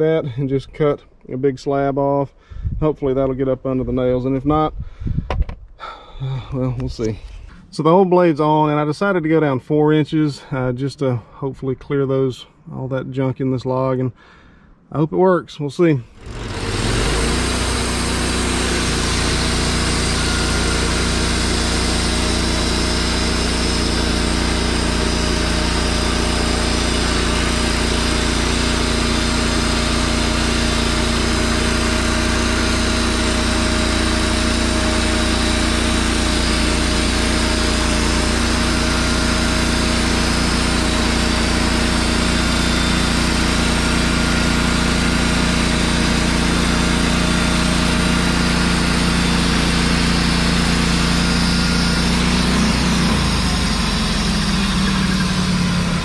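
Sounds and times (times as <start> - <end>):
band sawmill cutting log: 16.1 - 56.0.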